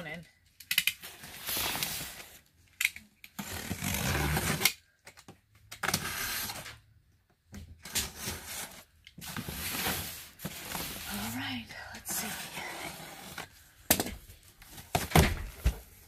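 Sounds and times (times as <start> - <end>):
box cutter scraping through tape: 3.4 - 4.8, 5.8 - 6.8.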